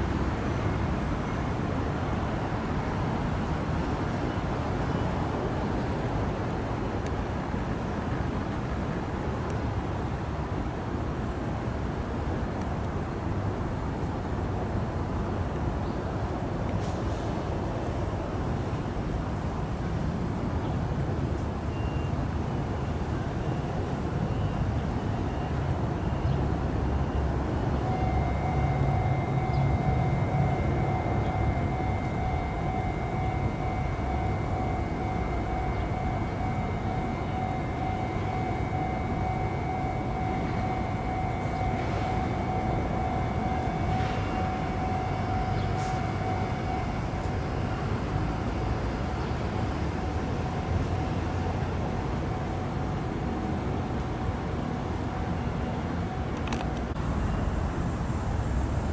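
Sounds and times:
low mechanical rumble: 27.3 - 55.5, 56.2 - 58.9
mid-pitched hum: 27.4 - 58.9.

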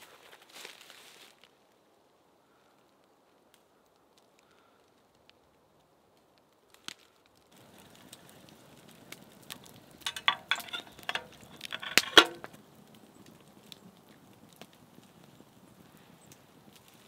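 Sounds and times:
metal cup clinking against pot: 10.1 - 12.5.

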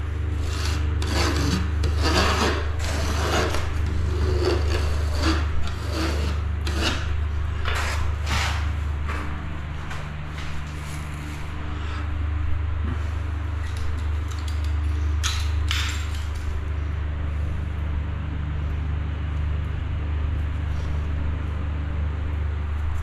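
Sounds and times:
scraper blade rasping on floor: 0.0 - 8.8
steady low hum: 0.0 - 23.0.

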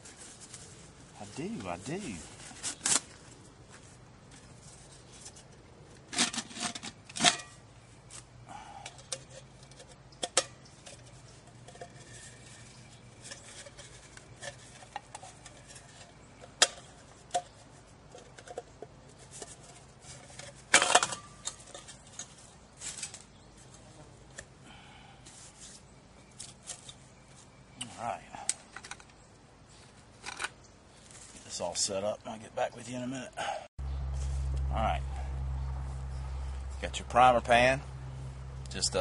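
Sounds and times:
rustling: 0.0 - 8.3, 9.0 - 24.4, 25.2 - 31.7.

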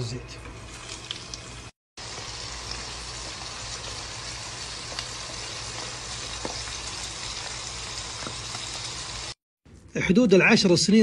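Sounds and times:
food deep-frying in oil: 0.6 - 9.4.

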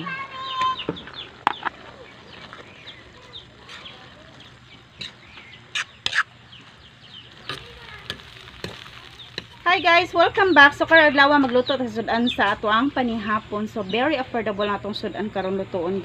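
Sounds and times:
chickens clucking: 0.0 - 9.9.

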